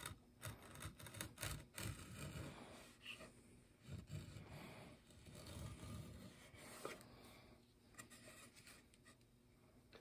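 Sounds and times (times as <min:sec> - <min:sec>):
chisel scraping wood: 0:00.0 - 0:07.0.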